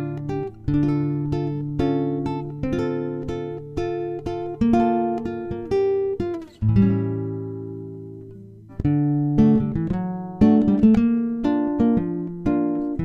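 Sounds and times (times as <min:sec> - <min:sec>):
acoustic guitar playing: 0:00.0 - 0:13.0.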